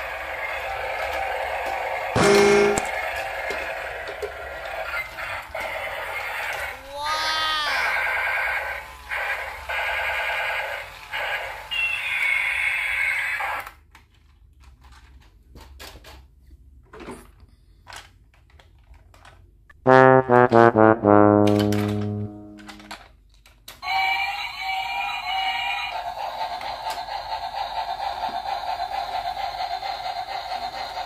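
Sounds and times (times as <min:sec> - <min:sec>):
toys clicking as handled: 0:17.8 - 0:19.5, 0:21.5 - 0:23.8.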